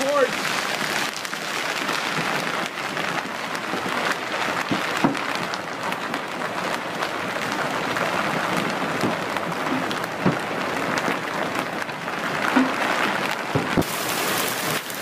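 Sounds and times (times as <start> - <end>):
hail and heavy rain pelting ground: 0.0 - 15.0
sharp hailstone hit: 13.6 - 15.0.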